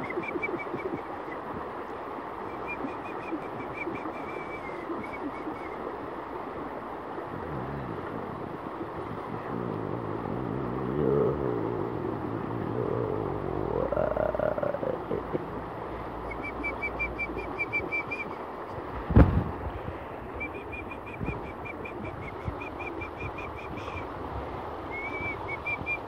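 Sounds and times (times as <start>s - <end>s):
water rushing over rocks: 0.0s - 26.0s
low sung hum gliding in pitch: 2.4s - 18.5s.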